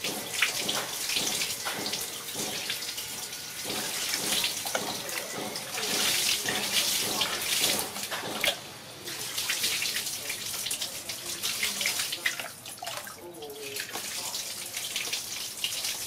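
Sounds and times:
water splashing onto plastic mat: 3.6 - 16.0.

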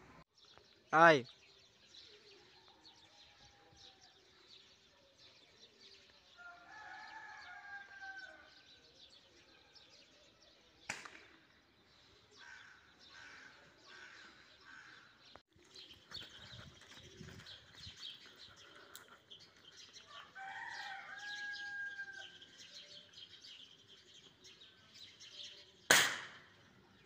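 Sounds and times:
air rifle shot: 10.9 - 11.3, 25.9 - 26.5.

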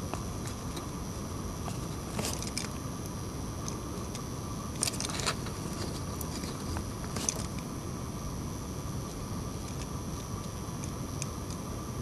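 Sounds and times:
background hiss and hum: 0.0 - 12.0
soldering clicks and crackles: 9.0 - 11.7.

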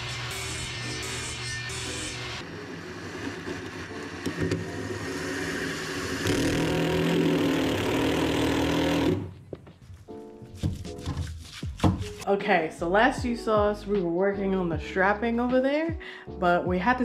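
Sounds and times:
table saw running: 0.0 - 9.3
cordless drill driving a screw: 5.6 - 9.2.

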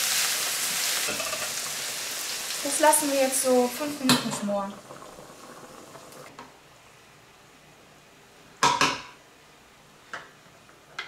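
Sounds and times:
pot boiling hiss: 0.0 - 6.9
cookware clattering: 1.0 - 1.6.

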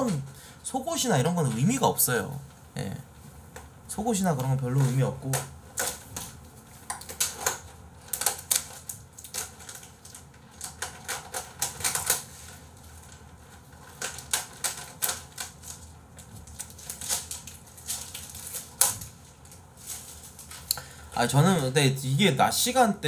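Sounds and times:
computer keyboard typing: 6.9 - 12.3, 13.8 - 19.0.

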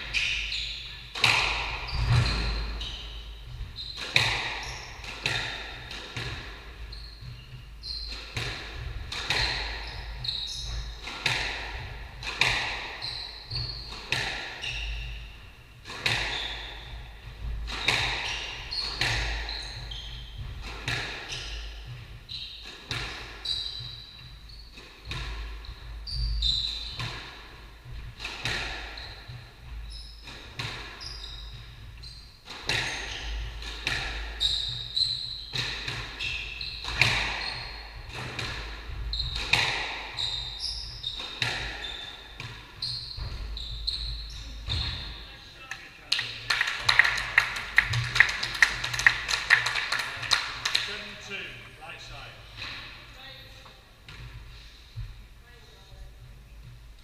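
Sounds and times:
squash ball hitting rackets and walls: 0.0 - 45.4, 46.1 - 51.0, 52.5 - 55.2
shoes squeaking on wooden floor: 0.0 - 56.8.

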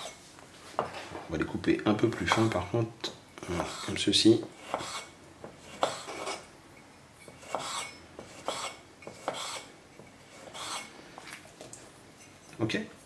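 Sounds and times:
knife slicing tomato on board: 3.4 - 6.5, 7.2 - 10.9.

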